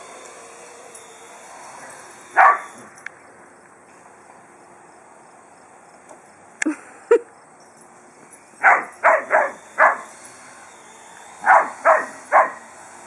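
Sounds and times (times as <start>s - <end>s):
dog barking: 2.4s - 2.7s, 8.6s - 10.1s, 11.4s - 12.6s.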